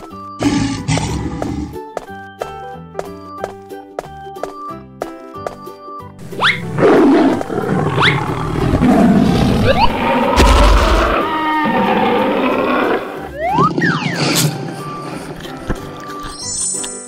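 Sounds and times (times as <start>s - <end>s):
light children's music: 0.0s - 6.8s, 13.2s - 17.0s
tiger growling and roaring: 0.4s - 1.8s, 6.6s - 13.3s.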